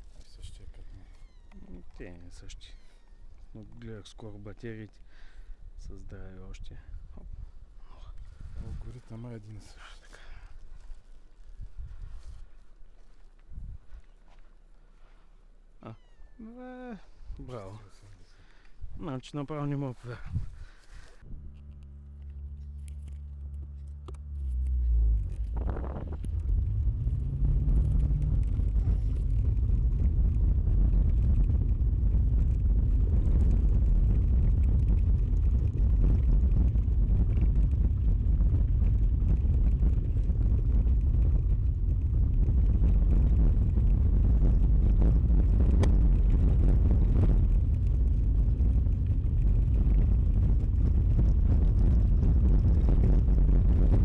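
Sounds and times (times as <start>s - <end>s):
car engine hum: 21.3s - 53.8s
tyres rumbling on bumpy road: 21.6s - 54.0s.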